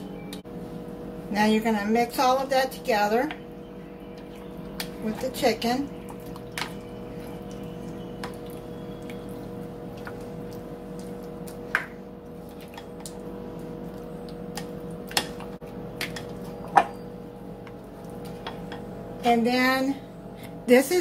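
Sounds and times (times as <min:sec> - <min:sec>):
steady hum: 0:00.0 - 0:21.0
spoon stirring wet mixture: 0:02.9 - 0:18.9.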